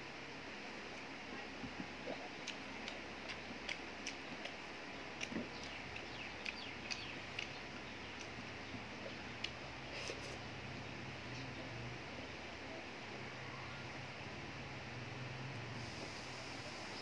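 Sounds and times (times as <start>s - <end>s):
steady background hum: 0.0s - 17.0s
wet chewing smacks: 2.0s - 8.4s
fingers mixing food on a plate: 2.3s - 10.4s.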